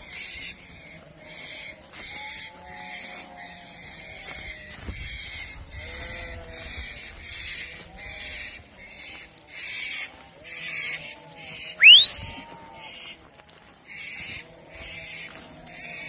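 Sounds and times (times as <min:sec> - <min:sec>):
sheep bleating: 0:05.8 - 0:13.2
high pulsing chirr: 0:11.8 - 0:12.2
sharp rising whistle: 0:11.8 - 0:12.3.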